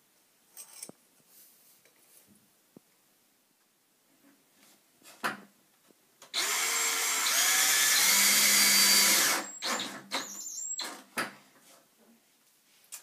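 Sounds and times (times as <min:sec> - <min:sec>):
cordless drill driving screw: 0:06.4 - 0:11.0.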